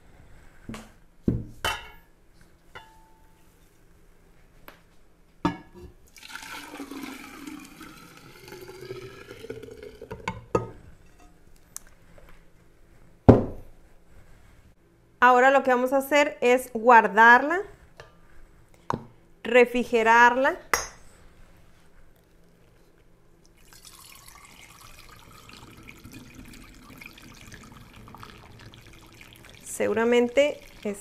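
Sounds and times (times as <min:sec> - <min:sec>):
liquid pouring into glass pitcher: 0:06.1 - 0:10.7, 0:23.4 - 0:31.0.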